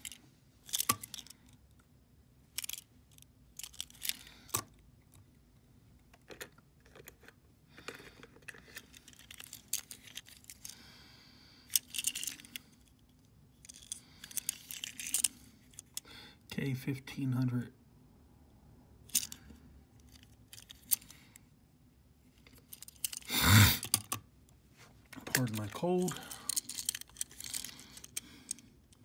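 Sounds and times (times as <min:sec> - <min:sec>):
toy truck handling clicks and taps: 0:00.0 - 0:01.5, 0:02.6 - 0:05.3, 0:11.7 - 0:12.6, 0:13.6 - 0:16.0, 0:19.1 - 0:21.2, 0:22.4 - 0:24.2, 0:26.5 - 0:29.0.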